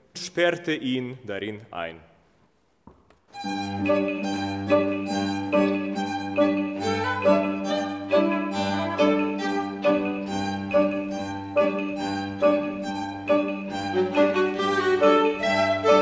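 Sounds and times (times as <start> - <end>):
string ensemble playing: 3.4 - 16.0.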